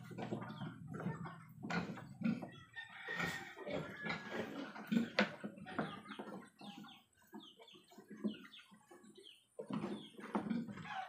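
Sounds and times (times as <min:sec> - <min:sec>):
piglets grunting: 0:00.0 - 0:06.0.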